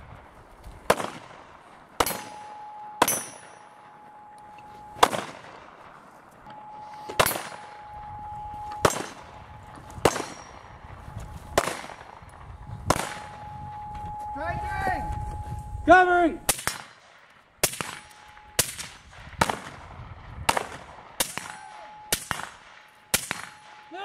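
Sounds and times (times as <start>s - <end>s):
rifle shots with echo: 0.8s - 4.0s, 5.0s - 5.8s, 8.8s - 9.4s, 10.0s - 10.9s, 11.6s - 13.5s, 16.5s - 23.9s.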